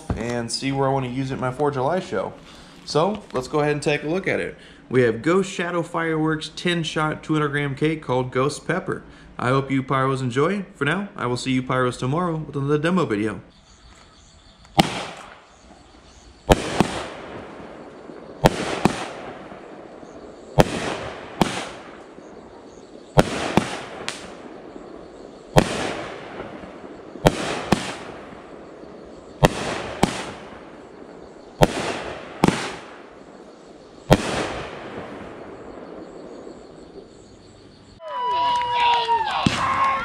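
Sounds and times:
firework cake bangs: 14.8 - 15.6, 16.4 - 24.8, 25.4 - 31.0, 31.6 - 33.1, 34.0 - 36.4.

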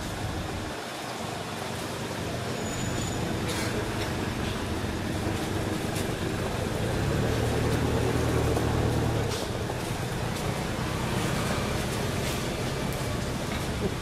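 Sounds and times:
vehicle engine rumble: 1.4 - 14.0.

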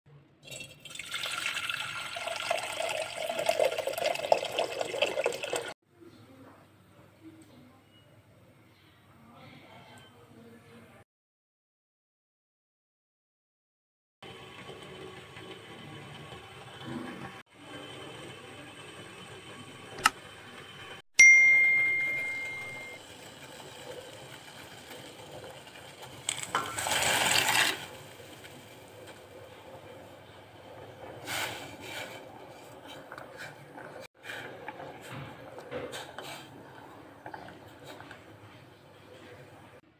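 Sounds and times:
water pouring into metal pot: 0.4 - 5.8, 22.1 - 29.3
bell-like ding: 21.2 - 23.0.

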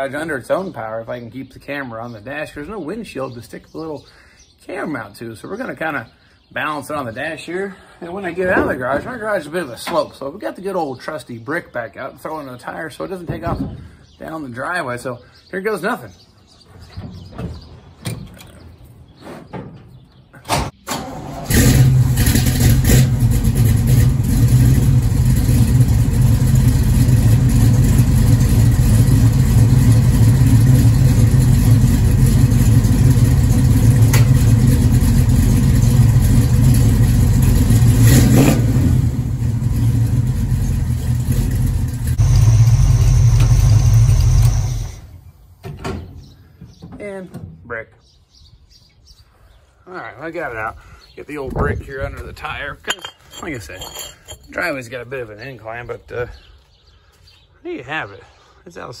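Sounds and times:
car engine running loud: 21.5 - 45.0.

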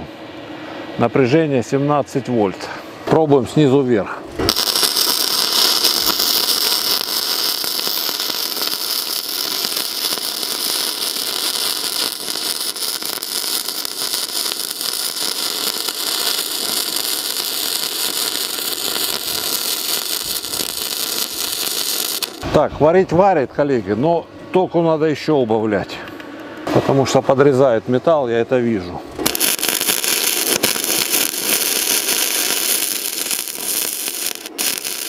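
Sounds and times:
welding arc crackling and hissing: 4.4 - 22.6, 29.1 - 35.0.

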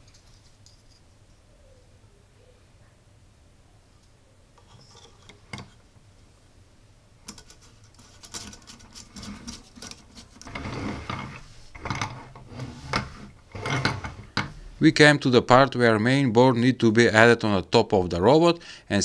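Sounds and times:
metal parts clicking and rattling: 7.3 - 12.2.

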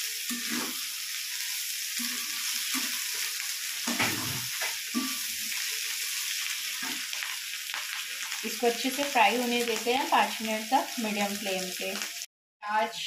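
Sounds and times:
onions sizzling in oil: 0.0 - 12.3
spatula scraping a wok: 0.1 - 6.2.

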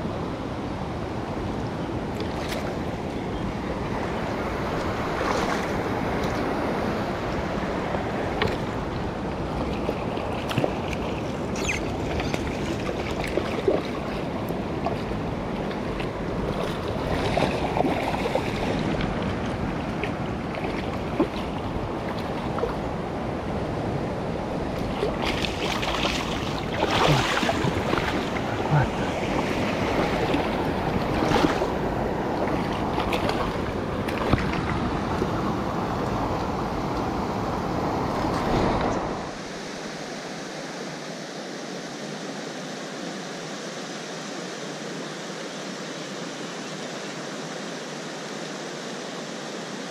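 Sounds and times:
river water rushing over rocks: 0.1 - 49.9
wind buffeting microphone: 1.0 - 39.4
water splashes: 2.1 - 3.0, 3.9 - 23.2, 24.5 - 39.8.

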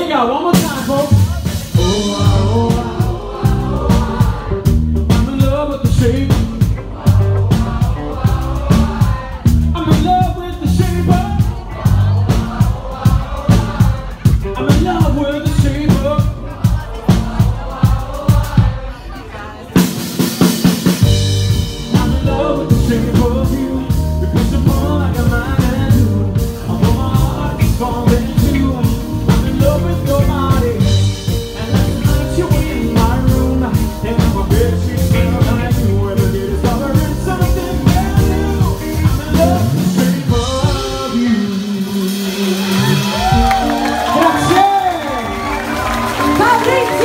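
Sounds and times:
man singing: 0.0 - 44.8
live pop band playing: 0.0 - 47.0
woman singing: 46.3 - 47.0.

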